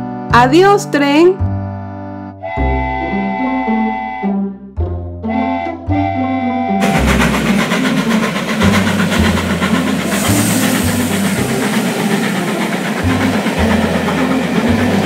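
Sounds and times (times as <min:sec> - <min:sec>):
train rumbling and rattling past: 0:05.3 - 0:15.0.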